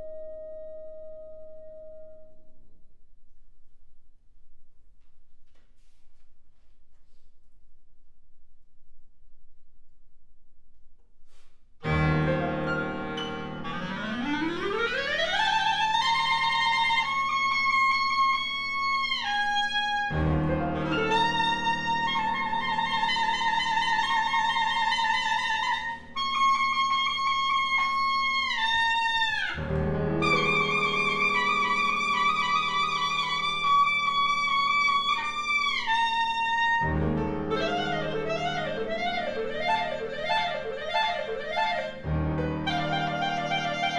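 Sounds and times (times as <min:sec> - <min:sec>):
clarinet playing: 0:11.8 - 0:43.9
piano chords: 0:11.8 - 0:43.9.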